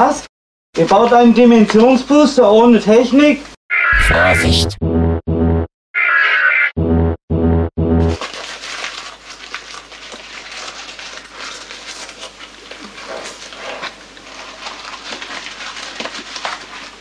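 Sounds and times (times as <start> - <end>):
small crackles and rustles: 8.2 - 17.0.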